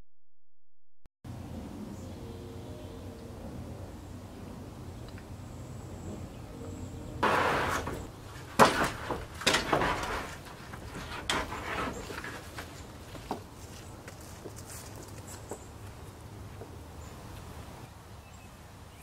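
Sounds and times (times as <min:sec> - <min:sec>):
wooden boards knocking together: 0:07.2 - 0:13.4
wooden boards scraping: 0:07.2 - 0:13.5.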